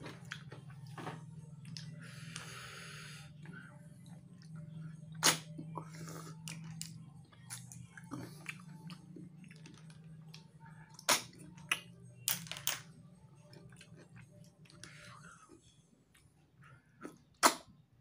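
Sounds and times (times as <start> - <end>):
steady low hum: 0.0 - 18.0.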